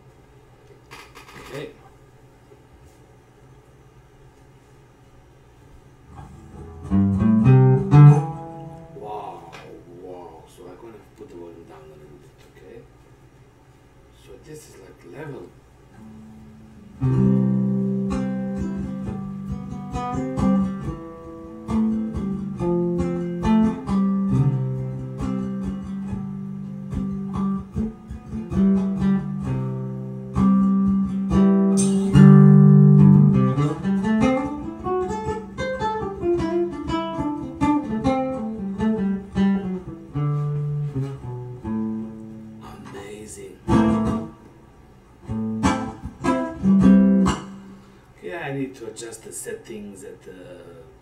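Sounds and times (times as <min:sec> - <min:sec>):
amplified guitalele strumming and picking: 0:06.0 - 0:10.0, 0:15.9 - 0:48.2.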